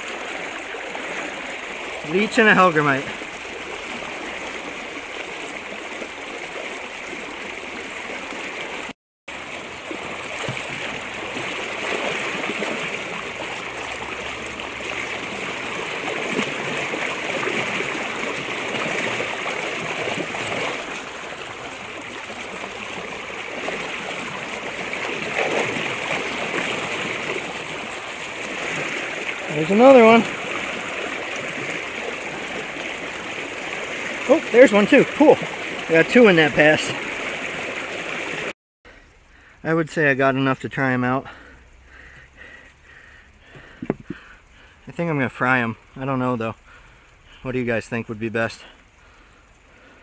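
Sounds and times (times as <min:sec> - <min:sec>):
river water rushing and splashing: 0:00.0 - 0:38.6.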